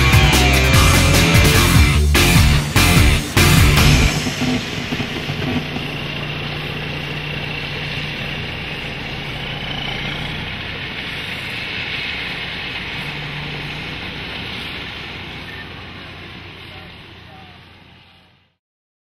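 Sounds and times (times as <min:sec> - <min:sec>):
diesel truck engine running: 0:00.0 - 0:18.6.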